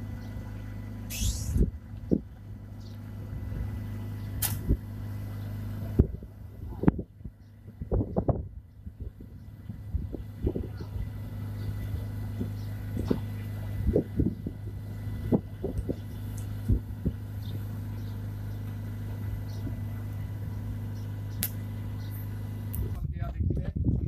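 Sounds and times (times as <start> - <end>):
low engine drone: 0.0 - 23.2
sharp click: 4.4 - 4.8, 21.3 - 21.6.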